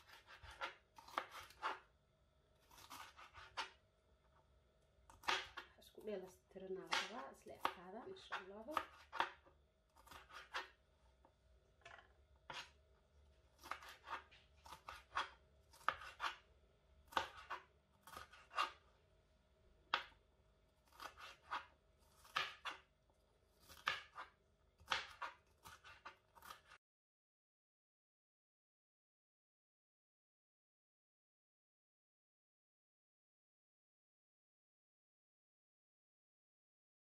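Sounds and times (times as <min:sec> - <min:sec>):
knife chopping on plastic board: 0:00.0 - 0:01.9, 0:02.7 - 0:03.8, 0:05.1 - 0:05.8, 0:06.8 - 0:10.8, 0:11.8 - 0:12.8, 0:13.6 - 0:16.5, 0:17.1 - 0:18.8, 0:19.9 - 0:20.2, 0:20.8 - 0:22.9, 0:23.6 - 0:26.8.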